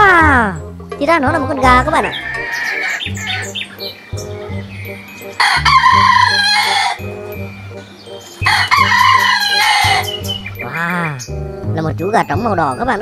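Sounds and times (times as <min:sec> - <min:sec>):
soft background music: 0:00.0 - 0:13.0
rooster crowing: 0:02.1 - 0:03.6, 0:05.4 - 0:07.0, 0:08.4 - 0:10.1.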